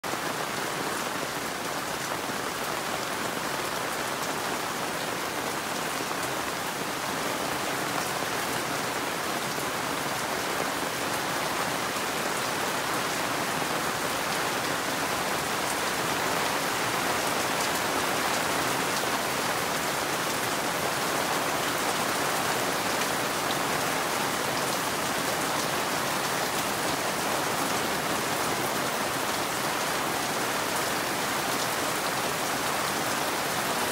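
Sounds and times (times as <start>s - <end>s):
steady rain falling: 0.0s - 33.9s.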